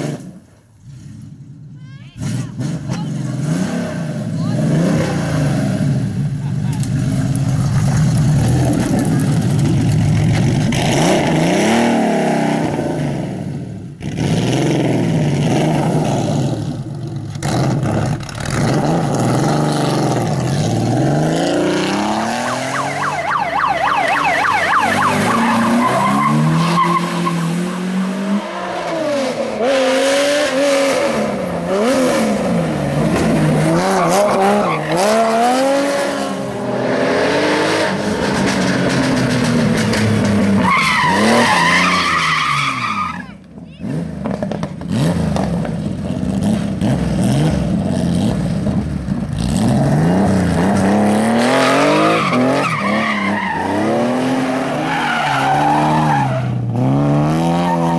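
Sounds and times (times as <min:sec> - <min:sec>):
rally car engines revving: 0:00.0 - 0:57.9
tyre squeal: 0:24.8 - 0:27.4, 0:40.6 - 0:43.4.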